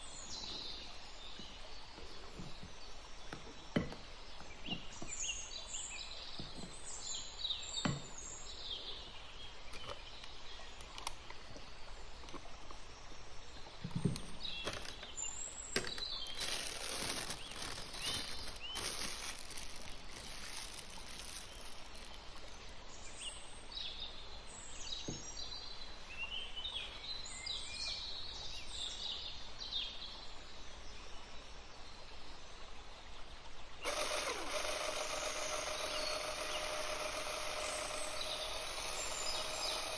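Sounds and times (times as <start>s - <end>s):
birds chirping: 13.8s - 23.6s, 33.8s - 39.9s
plastic piping bag crinkling: 14.6s - 15.2s, 15.8s - 22.6s
electric hand mixer whirring: 33.8s - 39.9s.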